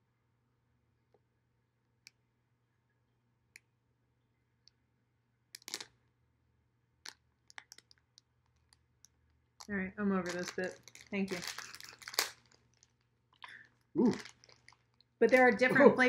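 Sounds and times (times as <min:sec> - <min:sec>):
plastic bag crinkling: 0:05.6 - 0:05.9, 0:07.0 - 0:15.6.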